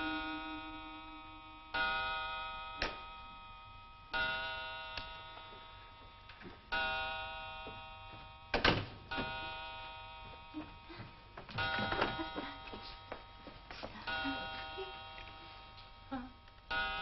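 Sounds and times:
clock bell striking: 4.2s - 6.0s, 6.6s - 8.5s, 9.1s - 10.9s, 11.5s - 15.8s, 16.7s - 17.0s.

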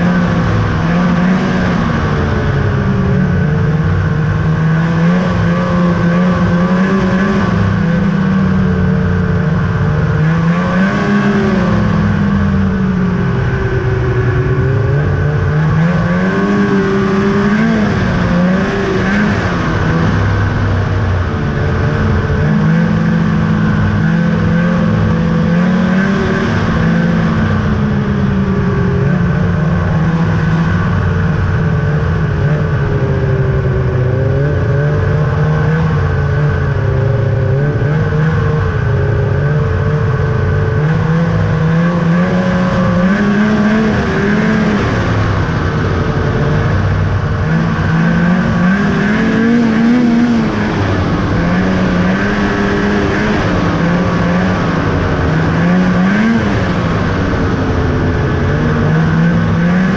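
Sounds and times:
snowmobile engine revving: 0.0s - 59.9s.

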